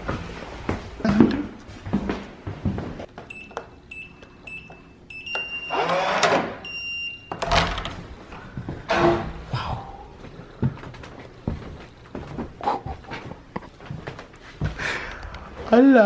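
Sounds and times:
door rattling open: 0:07.4 - 0:08.0.

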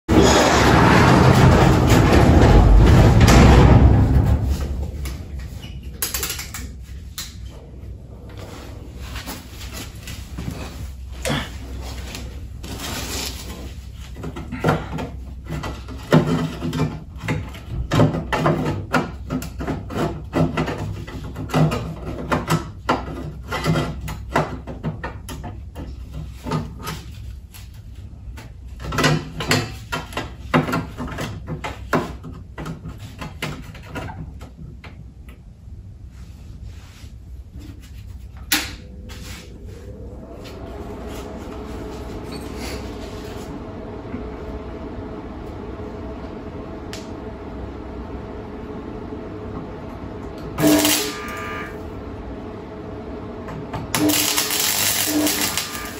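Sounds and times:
low steady hum: 0:00.1 - 0:55.9
metalwork knocks and clatter: 0:00.2 - 0:06.6
steady whining tone: 0:38.4 - 0:55.9.

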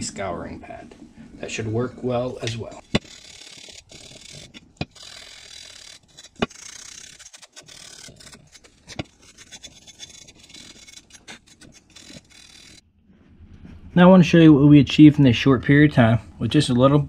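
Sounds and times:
scouring pad scrubbing metal: 0:05.9 - 0:12.8.

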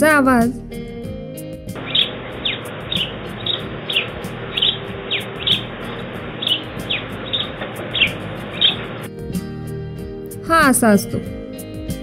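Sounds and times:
sparrow chirping: 0:01.8 - 0:09.1
field recording hiss: 0:01.8 - 0:09.6.

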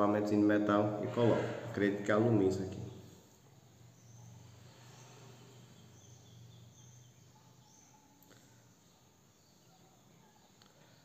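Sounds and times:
faint high chirps: 0:03.8 - 0:11.0.

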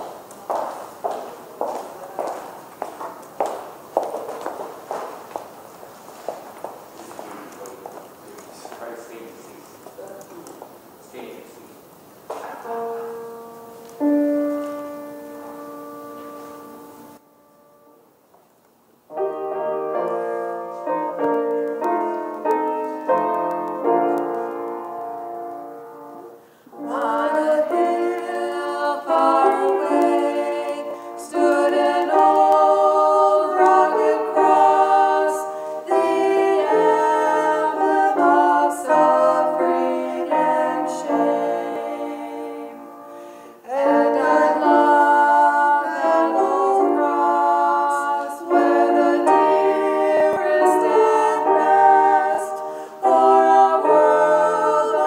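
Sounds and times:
grand piano: 0:00.0 - 0:55.0
women singing a duet: 0:26.7 - 0:55.0.

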